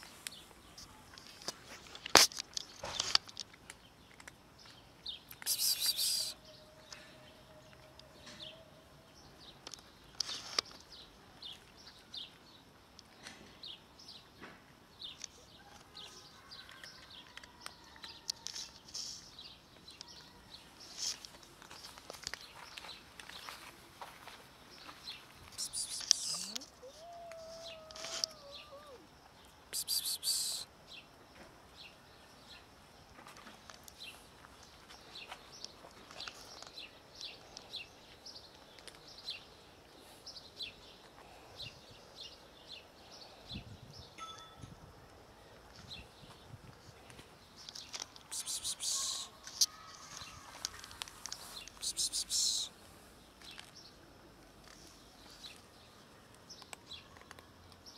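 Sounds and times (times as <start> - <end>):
cats crunching dry food: 1.3 - 5.4, 16.8 - 18.8, 38.5 - 39.2, 47.1 - 52.4, 54.4 - 57.8
short hissy noise bursts: 5.4 - 6.4
cat meowing: 26.3 - 29.0.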